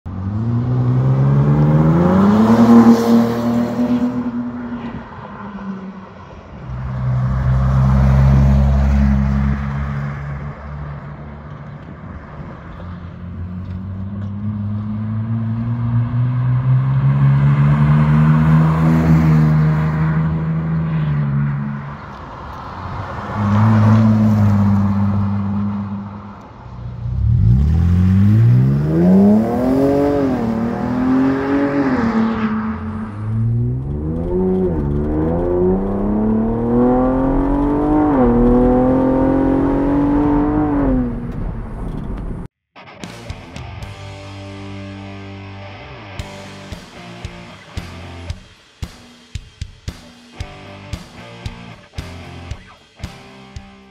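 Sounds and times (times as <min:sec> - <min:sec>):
engine exhaust accelerating: 0:27.0 - 0:42.5.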